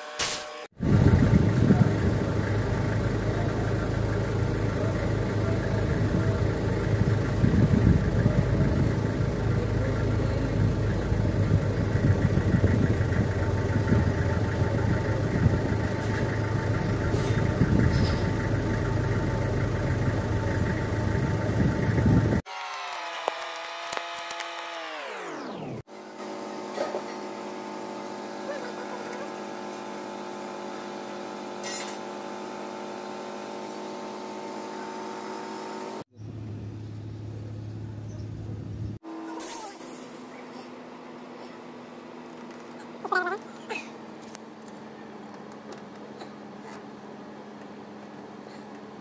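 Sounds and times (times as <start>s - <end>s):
mechanical drone: 0.0s - 22.4s, 23.3s - 32.4s.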